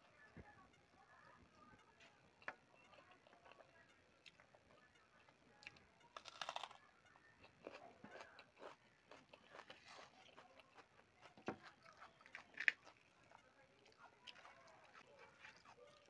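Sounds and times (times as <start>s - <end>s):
person chewing: 2.4s - 4.5s, 5.6s - 6.8s, 7.4s - 13.2s.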